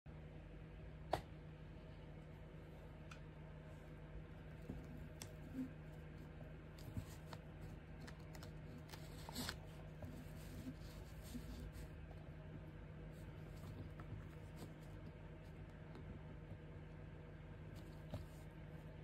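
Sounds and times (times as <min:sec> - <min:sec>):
steady low hum: 0:00.1 - 0:19.0.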